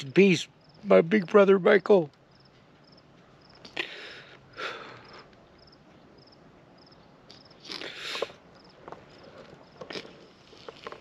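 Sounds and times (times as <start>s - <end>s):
crickets chirping: 0.0s - 11.0s
breaths close to microphone: 3.7s - 5.4s, 7.7s - 8.4s.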